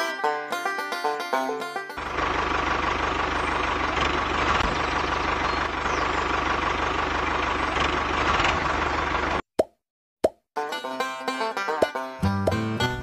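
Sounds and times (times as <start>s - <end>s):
motor chugging and whining: 2.1s - 9.2s.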